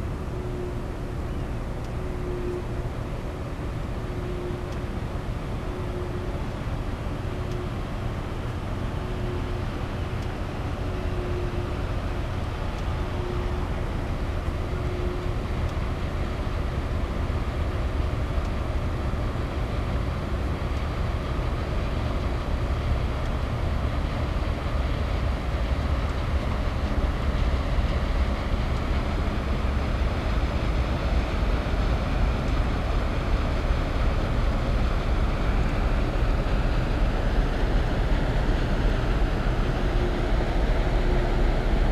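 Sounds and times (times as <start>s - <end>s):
ship diesel engines droning: 0.0s - 41.9s.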